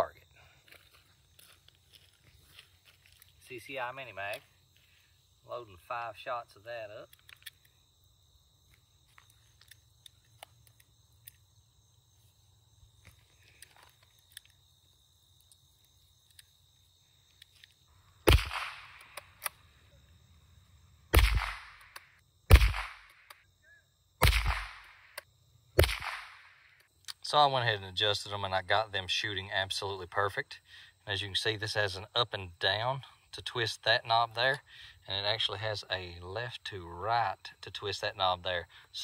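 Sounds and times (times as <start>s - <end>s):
rifle shots with echo: 18.3s - 19.2s, 21.1s - 21.9s, 22.5s - 23.2s, 24.2s - 25.2s, 25.8s - 26.5s.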